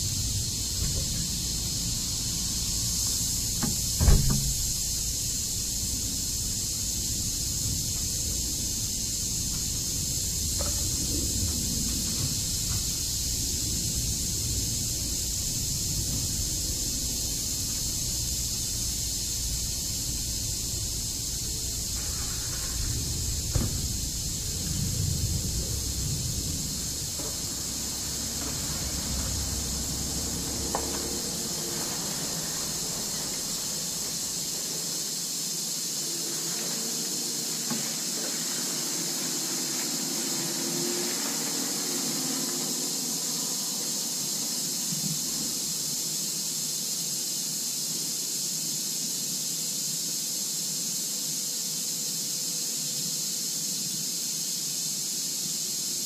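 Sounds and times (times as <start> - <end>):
low rumble: 0.0 - 34.6
high-pitched hiss: 0.0 - 56.0.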